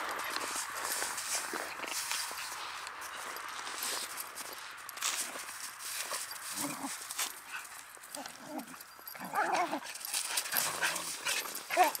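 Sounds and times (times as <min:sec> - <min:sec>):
scuffling in snow: 0:00.1 - 0:09.8
dogs yipping: 0:06.0 - 0:12.0
dogs growling: 0:06.1 - 0:12.0.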